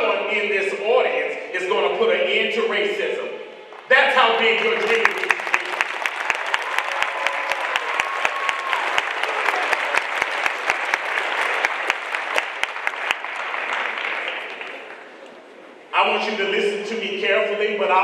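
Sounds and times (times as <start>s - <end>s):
loud regular claps: 3.8s - 15.4s
audience applauding: 4.4s - 15.5s.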